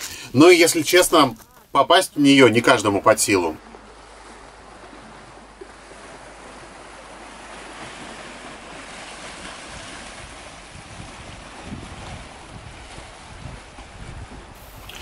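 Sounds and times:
waves washing against rocky shore: 2.2 - 15.0
wind gusts on microphone: 8.0 - 15.0.

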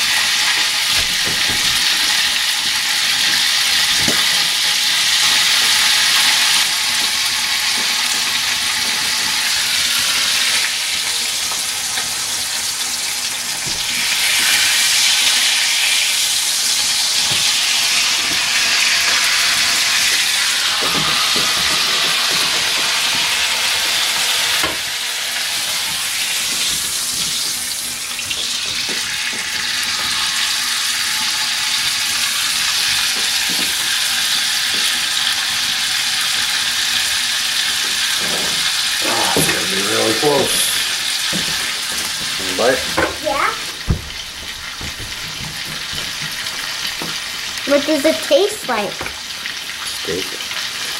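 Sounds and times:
meat sizzling in a skillet: 0.0 - 50.9
knock: 1.0 - 1.9, 43.8 - 46.4
voices: 39.0 - 40.8, 47.7 - 49.0.

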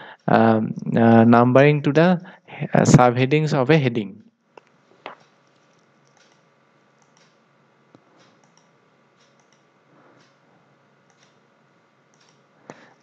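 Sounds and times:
computer mouse clicks: 5.1 - 6.4, 7.0 - 7.4, 8.0 - 10.4, 12.1 - 12.8.

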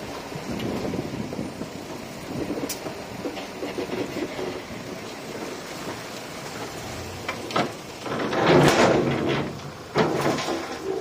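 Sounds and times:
soil and rock crashing: 3.2 - 11.0.

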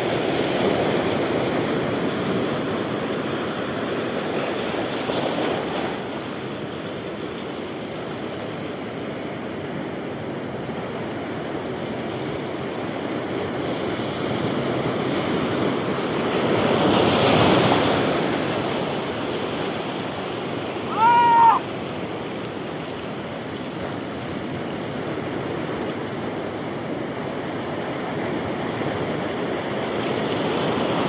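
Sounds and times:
surf breaking over rocks: 0.0 - 31.0
short high call: 20.9 - 21.6.

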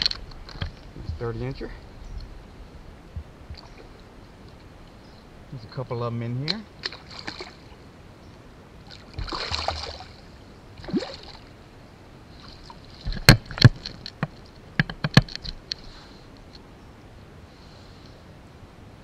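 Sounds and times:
water splashing and swirling: 6.5 - 7.8, 8.8 - 11.6
fish thrashing at surface: 9.1 - 10.1
sharp knocks and taps: 13.1 - 15.6.

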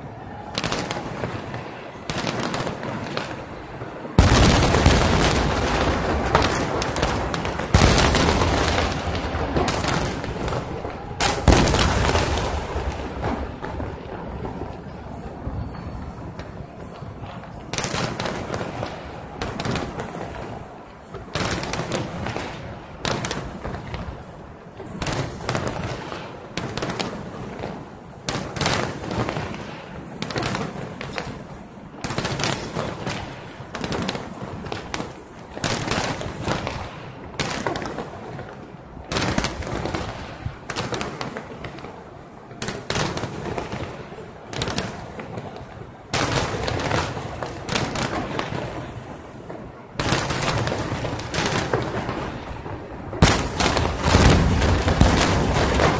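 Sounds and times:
firework shells bursting: 53.2 - 55.9.

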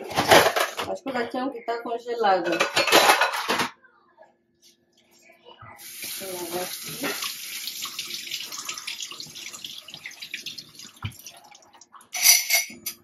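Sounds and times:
water running from tap into sink: 5.8 - 12.0.

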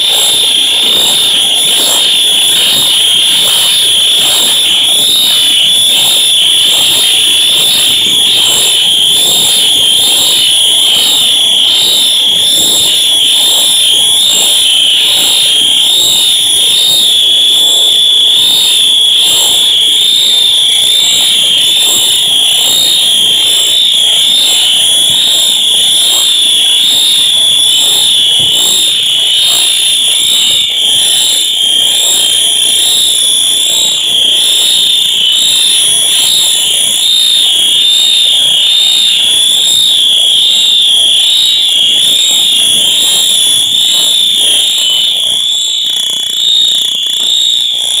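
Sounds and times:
fire alarms wavering tone: 0.0 - 48.0.

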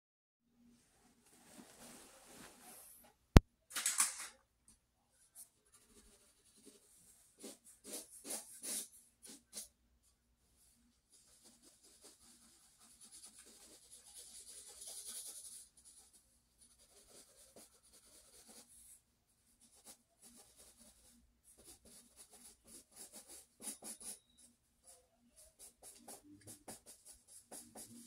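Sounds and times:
pen scratching on paper: 5.7 - 9.7, 19.6 - 24.5, 25.4 - 28.0.

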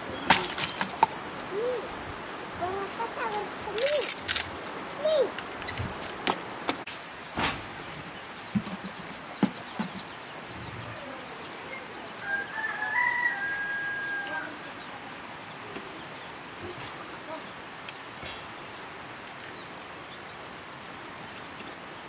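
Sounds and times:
rooster crowing: 12.1 - 14.7.

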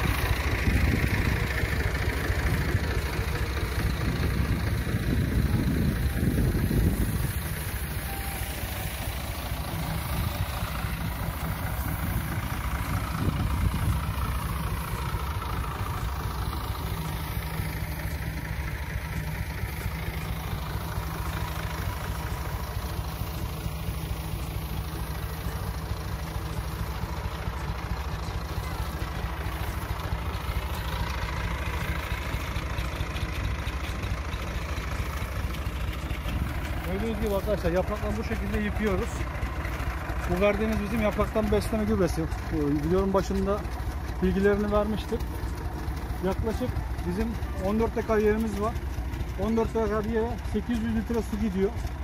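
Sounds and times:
tractor engine running steadily: 0.0 - 52.0.

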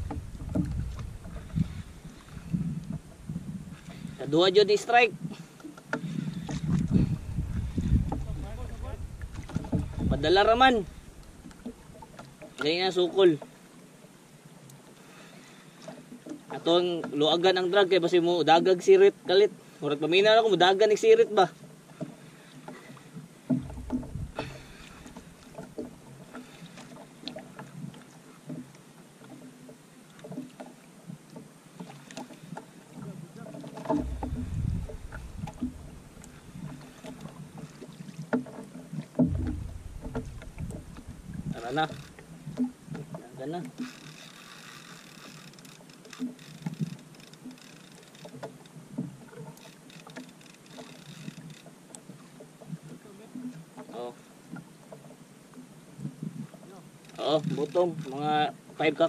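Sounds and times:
dull thump: 0.0 - 2.0, 7.0 - 11.7, 23.5 - 25.9, 33.8 - 36.8, 39.2 - 42.2
clicks and knocks from boat: 0.0 - 4.2, 5.6 - 13.7, 15.8 - 17.4, 21.6 - 59.0
water lapping against hull: 0.0 - 59.0.

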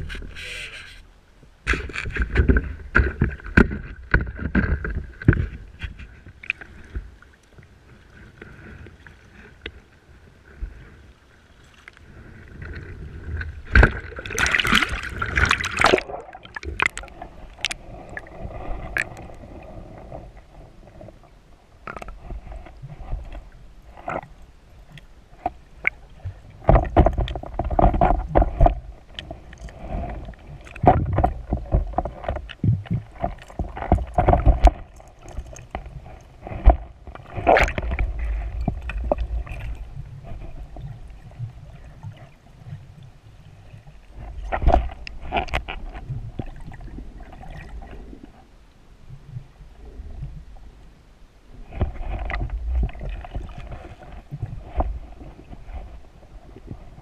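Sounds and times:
water splashing: 11.4 - 20.2, 25.6 - 42.8
muffled underwater swishing: 11.6 - 48.5.

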